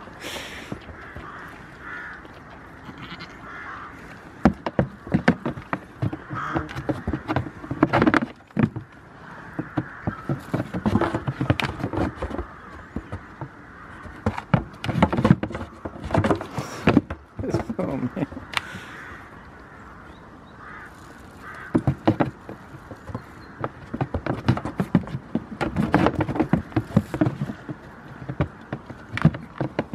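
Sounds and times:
hooves knocking on plastic tubs: 0:04.4 - 0:18.8, 0:21.4 - 0:29.9.

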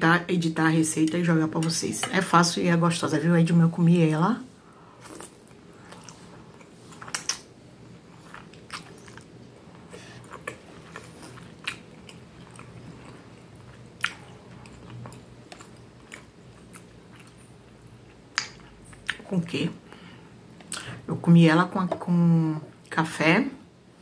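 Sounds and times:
faint low hum: 0:00.0 - 0:24.0
person chewing food: 0:05.0 - 0:19.2.

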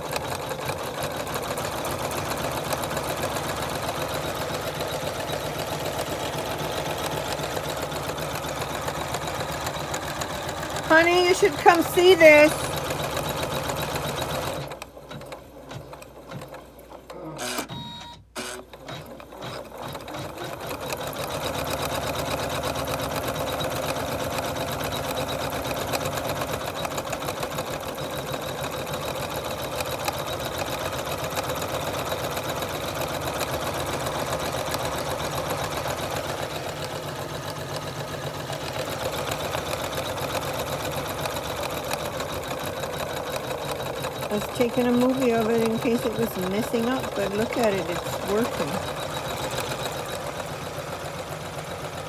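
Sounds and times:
embroidery machine stitching: 0:00.0 - 0:52.0.

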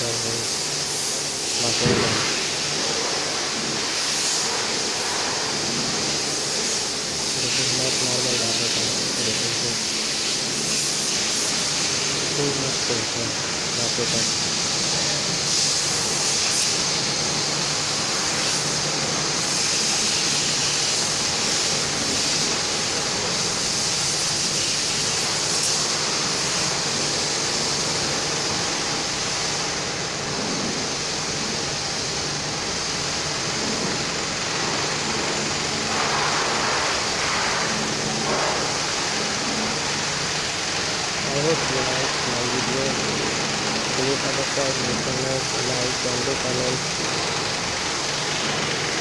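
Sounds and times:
rushing hiss: 0:00.0 - 0:49.0.

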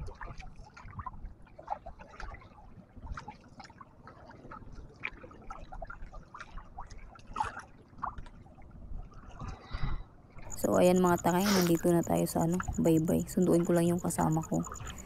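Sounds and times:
small paddle splashes: 0:00.0 - 0:08.6.

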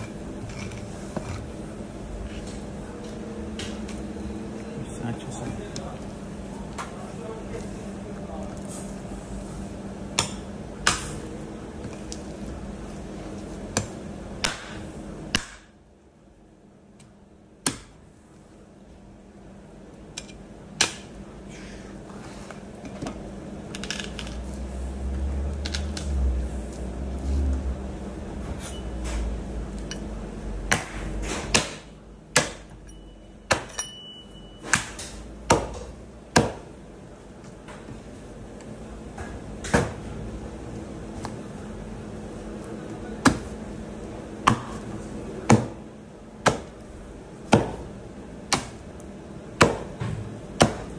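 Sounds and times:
cleaver chopping meat on wood: 0:13.8 - 0:15.7, 0:17.6 - 0:17.9, 0:30.7 - 0:32.7, 0:34.7 - 0:36.7, 0:43.2 - 0:43.5, 0:44.5 - 0:44.8, 0:45.5 - 0:45.8, 0:46.4 - 0:46.8, 0:47.5 - 0:47.8, 0:48.5 - 0:48.8, 0:49.6 - 0:50.9.

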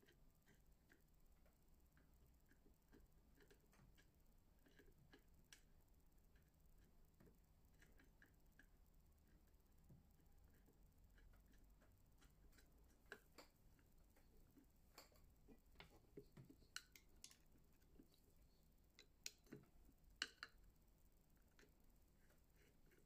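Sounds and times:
small metal clicks and taps: 0:10.5 - 0:18.1, 0:18.9 - 0:20.6.

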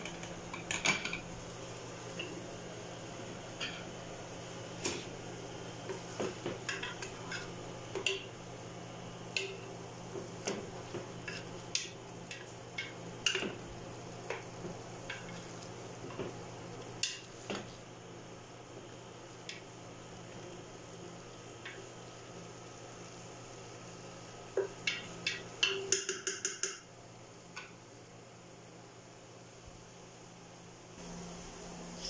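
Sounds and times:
faint frying sizzle: 0:00.0 - 0:32.0
spatula knocking and scraping pot: 0:04.7 - 0:05.2, 0:05.8 - 0:08.4, 0:09.3 - 0:16.4, 0:24.6 - 0:26.8.

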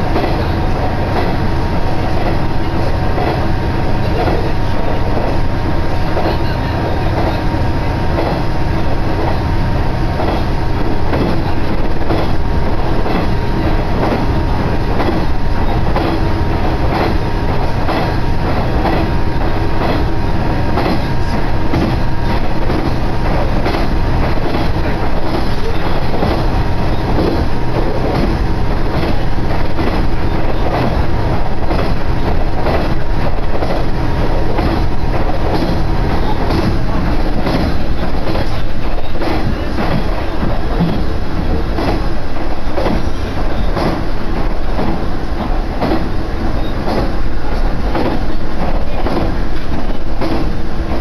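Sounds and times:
wheels clicking over rail joints: 0:00.0 - 0:05.5, 0:06.1 - 0:51.0
railcar engine hum: 0:00.0 - 0:51.0
wheels rolling on rails: 0:00.0 - 0:51.0.

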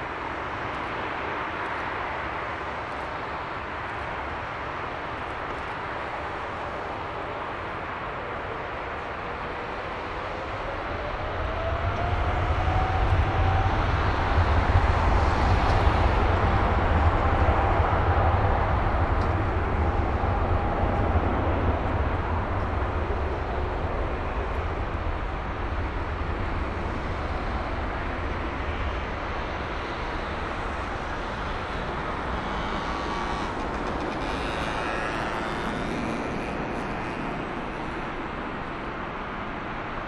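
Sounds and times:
jet airliner taxiing rumble: 0:00.0 - 0:40.0.

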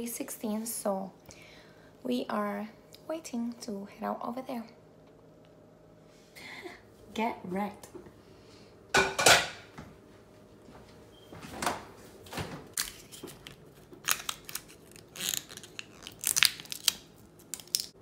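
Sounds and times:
foil seal tearing and crinkling: 0:12.8 - 0:18.0.

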